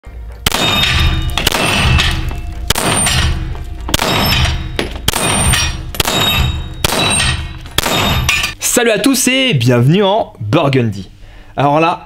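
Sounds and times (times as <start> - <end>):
pistol shots with echo: 0.4 - 8.6
steel gong target clanging: 0.4 - 8.6.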